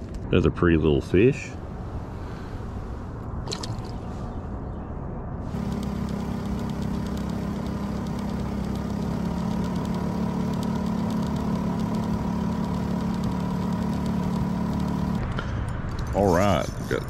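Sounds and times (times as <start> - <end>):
outboard motor running: 5.5 - 15.4.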